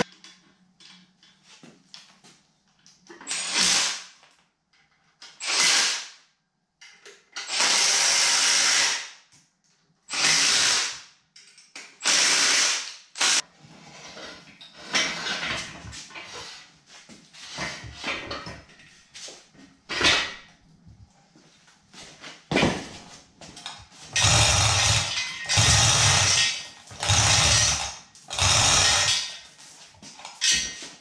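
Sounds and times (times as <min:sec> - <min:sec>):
cordless drill bursts: 0:03.3 - 0:04.0, 0:05.4 - 0:06.1, 0:07.5 - 0:09.1, 0:10.1 - 0:11.0, 0:12.0 - 0:13.4, 0:24.2 - 0:29.4.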